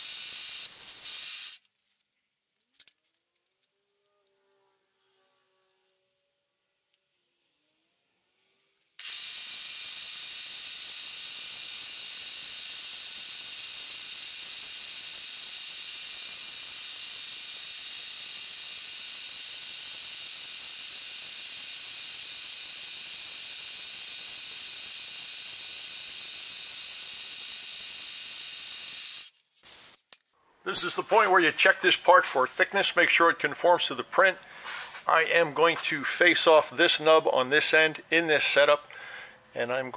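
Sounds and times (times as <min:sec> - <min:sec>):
milling machine spindle whine: 0:09.0 - 0:29.3.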